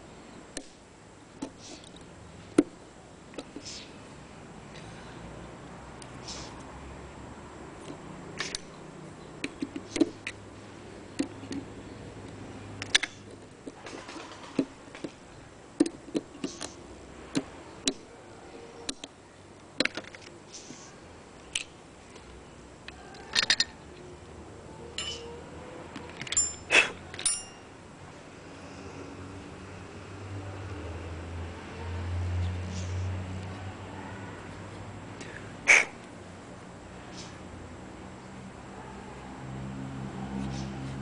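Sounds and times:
hand tools clinking on metal: 25.0 - 25.3, 26.2 - 27.7.

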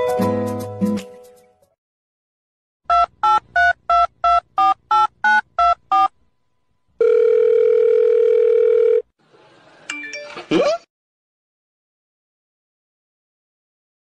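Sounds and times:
steady telephone tone: 7.0 - 9.1.

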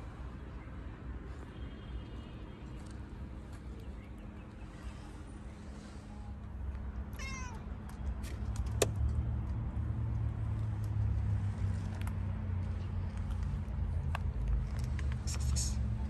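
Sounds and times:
cat meowing: 7.1 - 7.7.

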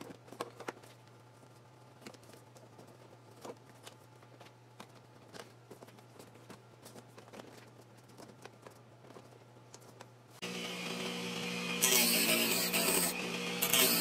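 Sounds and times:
wire and paper rustling: 0.0 - 10.4.

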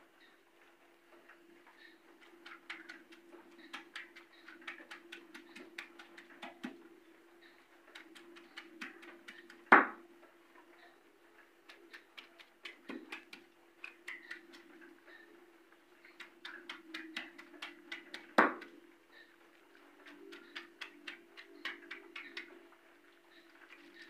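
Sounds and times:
stone pestle knocking on stone: 9.7 - 10.0, 18.4 - 18.7.

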